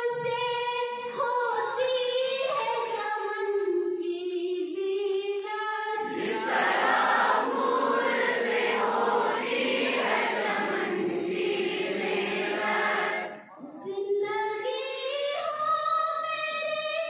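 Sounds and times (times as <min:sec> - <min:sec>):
choir singing in unison: 0:06.0 - 0:13.6.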